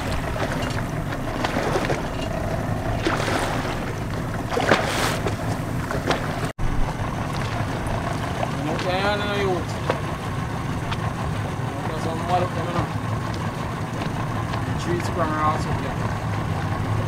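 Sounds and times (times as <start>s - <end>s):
boat motor rumbling: 0.0s - 17.0s
water splashing along hull: 0.0s - 17.0s.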